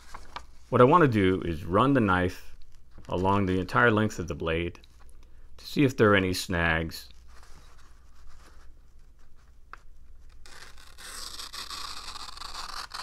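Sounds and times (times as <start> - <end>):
knife blade scraping paper: 10.4 - 13.0.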